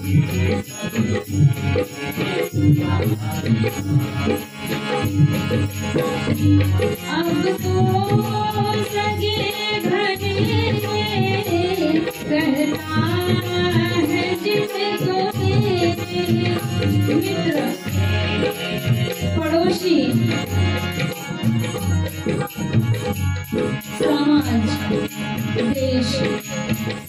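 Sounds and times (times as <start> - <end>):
steady drum beat: 0.0 - 25.0
rattling percussion: 0.0 - 27.0
woman singing devotional song: 4.3 - 21.4, 23.5 - 27.0.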